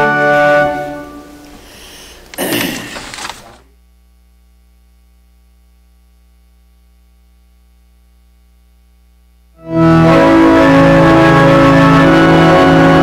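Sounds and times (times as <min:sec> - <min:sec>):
music: 0:00.0 - 0:01.6, 0:09.6 - 0:13.0
electrical mains hum: 0:00.0 - 0:13.0.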